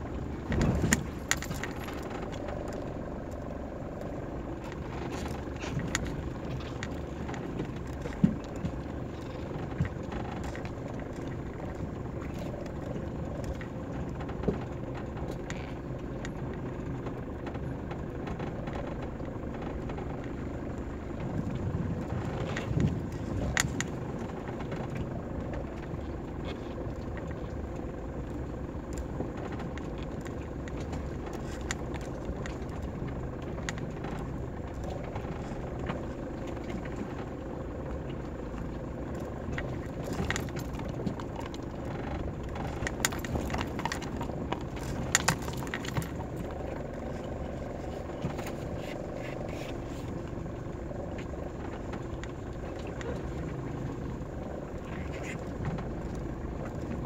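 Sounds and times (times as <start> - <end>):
vehicle running on dirt track: 0.0 - 26.4.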